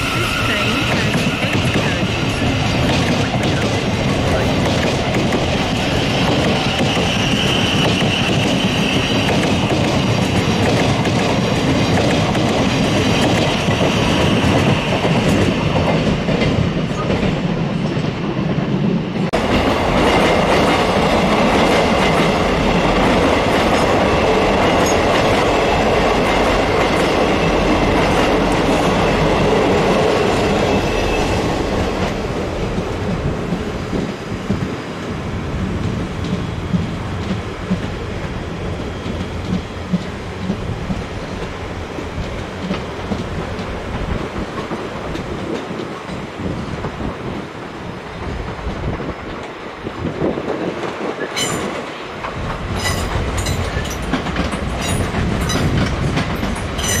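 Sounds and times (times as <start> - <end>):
train wheels rumbling on rail: 0.0 - 57.0
clickety-clack over points: 0.9 - 18.6, 35.8 - 38.3, 39.0 - 41.6, 42.2 - 47.1, 48.5 - 57.0.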